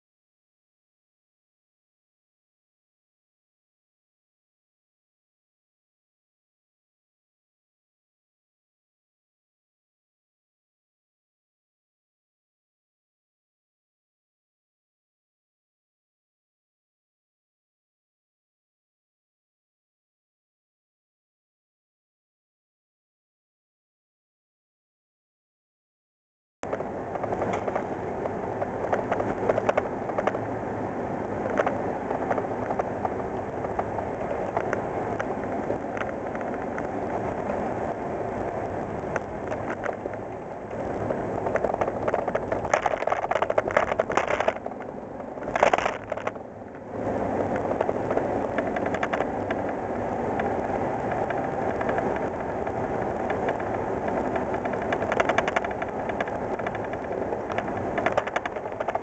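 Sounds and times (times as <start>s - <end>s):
small clicks and rattles: 26.6s - 30.5s, 31.2s - 59.0s
engine road and wind noise: 26.6s - 59.0s.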